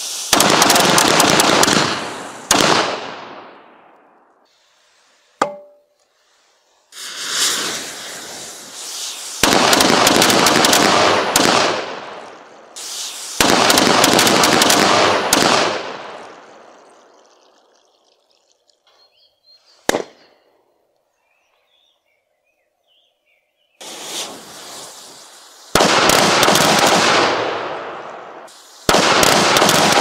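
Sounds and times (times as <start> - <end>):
fuse hissing: 0.0 - 0.4, 4.4 - 5.4, 6.0 - 9.6, 12.2 - 13.6, 23.8 - 25.8, 28.4 - 28.9
small rockets crackling salvo: 0.0 - 5.4, 6.1 - 18.7, 19.8 - 20.4, 23.8 - 30.0.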